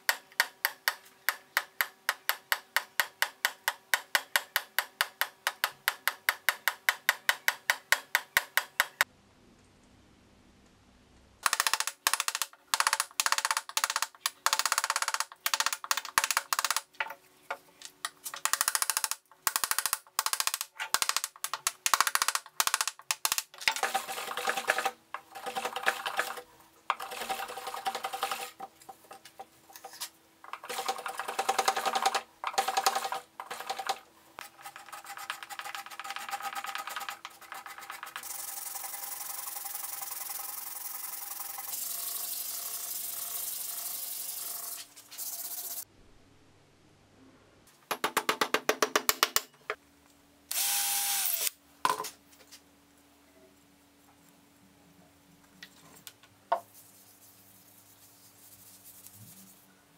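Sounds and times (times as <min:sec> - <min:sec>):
carving gouge scraping wood: 0:23.8 - 0:38.3
sandpaper sanding wood: 0:34.4 - 0:40.2.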